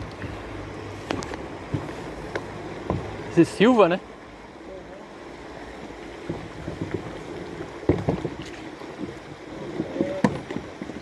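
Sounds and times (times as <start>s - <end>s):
paddle water swishing: 0.0s - 11.0s
paddle knocking against hull: 1.0s - 3.2s, 6.2s - 11.0s.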